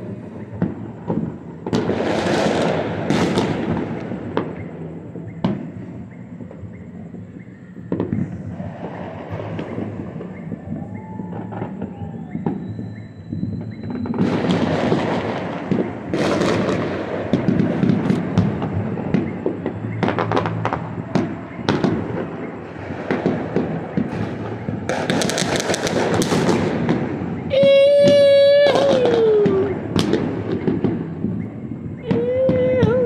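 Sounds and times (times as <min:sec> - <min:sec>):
distant fireworks bangs: 0:00.0 - 0:33.0.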